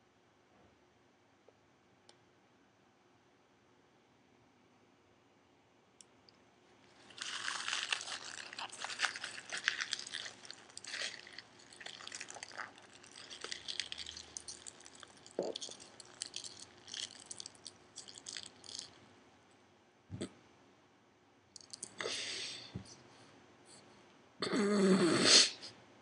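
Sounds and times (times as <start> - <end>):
chewing crunchy leaves: 6.9 - 19.0.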